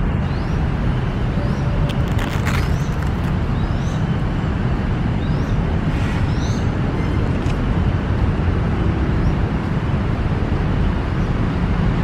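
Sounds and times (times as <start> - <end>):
low rumble of city traffic: 0.0 - 12.0
small birds chirping: 0.2 - 4.2, 5.2 - 7.4.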